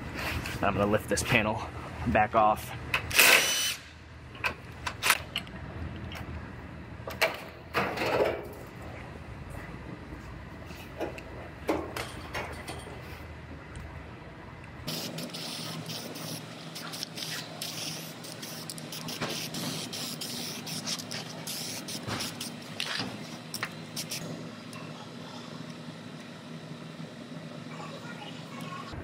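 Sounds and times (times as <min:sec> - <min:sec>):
steady low hum: 0:00.0 - 0:29.0
aerosol can spraying: 0:14.9 - 0:22.6, 0:24.0 - 0:24.2.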